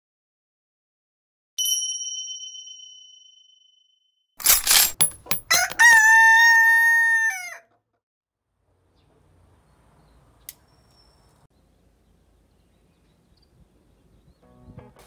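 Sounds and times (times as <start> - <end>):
bell-like ding: 1.6 - 4.1
rooster crowing: 5.5 - 7.7.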